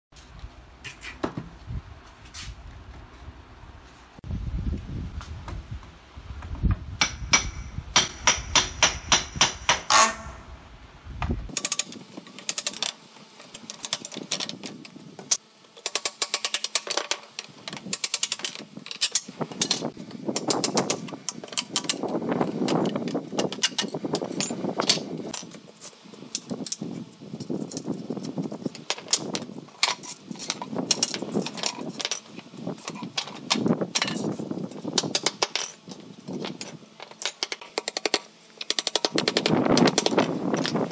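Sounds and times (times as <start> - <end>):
hammer striking steel bar: 7.0 - 10.4.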